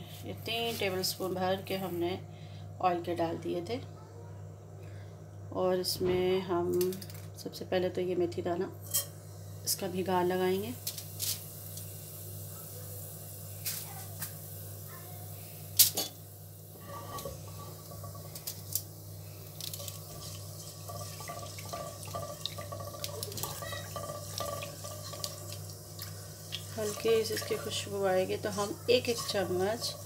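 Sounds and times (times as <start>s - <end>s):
steady low hum: 0.0s - 30.0s
seeds crackling in hot oil: 9.7s - 30.0s.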